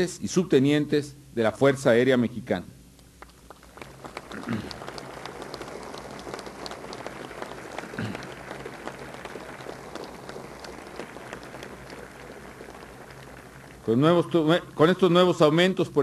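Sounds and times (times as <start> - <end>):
crowd applauding: 3.2 - 15.5.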